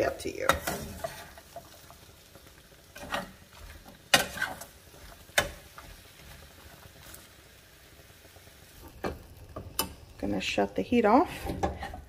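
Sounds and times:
metal spoon scraping skillet: 0:00.4 - 0:01.9, 0:02.9 - 0:06.4, 0:11.2 - 0:12.0.

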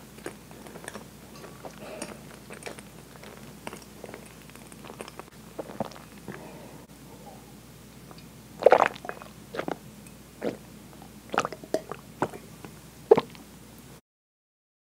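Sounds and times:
wet gulping and swallowing: 0:00.2 - 0:06.5, 0:08.6 - 0:09.8, 0:10.4 - 0:10.6, 0:11.3 - 0:12.5, 0:13.1 - 0:13.4.

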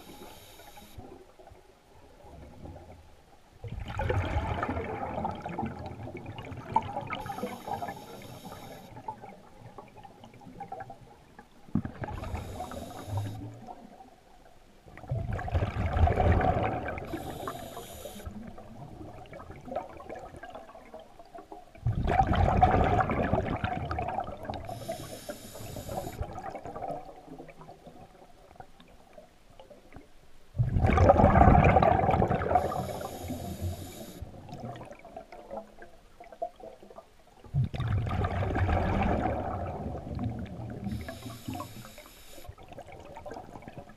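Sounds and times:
air hissing through regulator: 0:00.0 - 0:01.0, 0:07.2 - 0:08.9, 0:12.1 - 0:13.4, 0:17.1 - 0:18.3, 0:24.7 - 0:26.2, 0:32.5 - 0:34.2, 0:40.8 - 0:42.5
gurgling exhaled bubbles: 0:03.7 - 0:08.2, 0:11.8 - 0:13.7, 0:15.0 - 0:20.9, 0:21.8 - 0:28.1, 0:30.6 - 0:35.6, 0:37.5 - 0:43.9.

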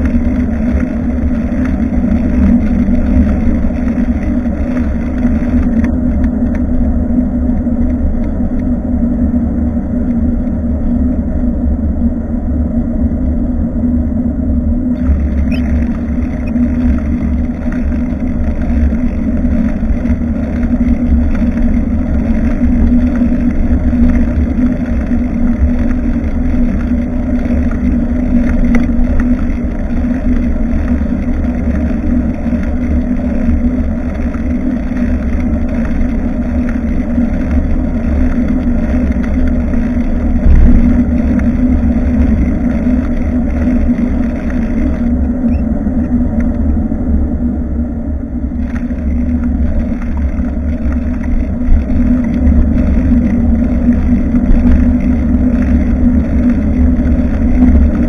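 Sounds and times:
tyre and road noise: 0:00.0 - 0:11.9, 0:14.9 - 0:47.4, 0:48.4 - 0:58.0
steady low hum: 0:00.0 - 0:58.0
wind buffeting microphone: 0:00.0 - 0:58.0.

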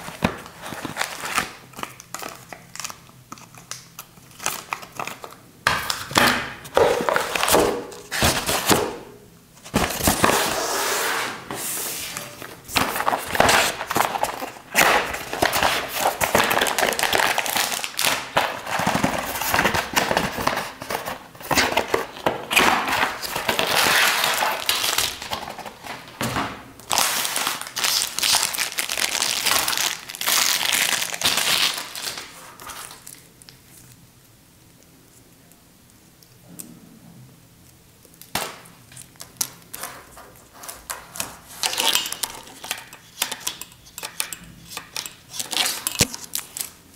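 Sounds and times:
packaging rustling and crinkling: 0:00.0 - 0:08.9, 0:12.1 - 0:34.0.

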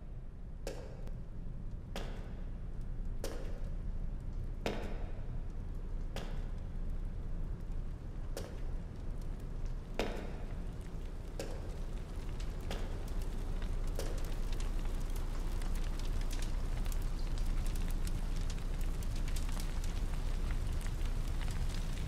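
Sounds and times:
low continuous rumble: 0:00.0 - 0:22.0
fire crackling and popping: 0:05.4 - 0:22.0.

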